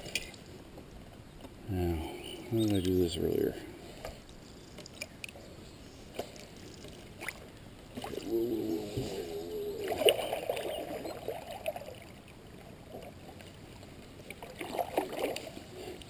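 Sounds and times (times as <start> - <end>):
paddle swirling water: 6.0 - 16.0.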